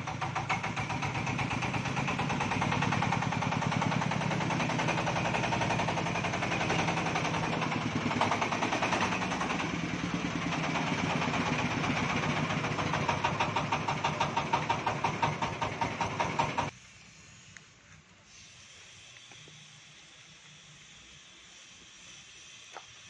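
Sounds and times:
diesel engine pulsing: 0:00.0 - 0:16.7.

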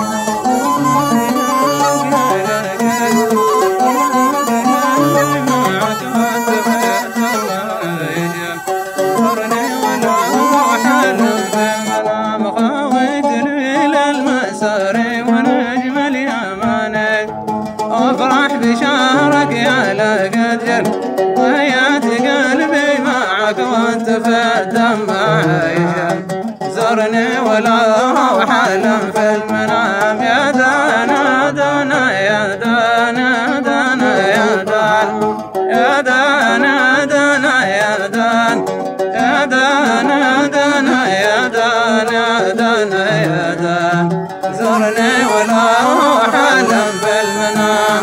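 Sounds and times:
reed pipe melody: 0:00.0 - 0:12.3, 0:19.0 - 0:20.4, 0:44.2 - 0:48.0
oud: 0:00.0 - 0:48.0.

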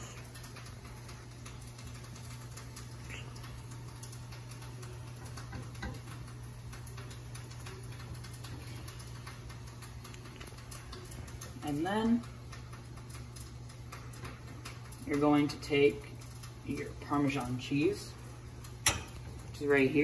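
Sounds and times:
steady low hum: 0:00.0 - 0:20.0
metal tongs and ladle tapping: 0:18.8 - 0:19.2.

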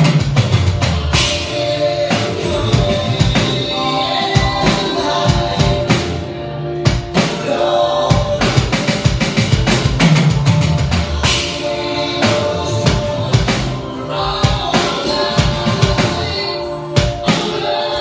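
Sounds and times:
backing song with singing: 0:00.0 - 0:18.0
electronic drum kit groove: 0:00.0 - 0:18.0.

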